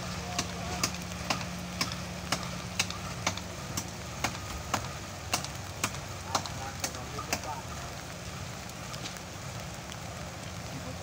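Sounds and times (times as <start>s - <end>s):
diesel engine idling: 0.0s - 9.0s
sharp ticking: 0.3s - 7.7s.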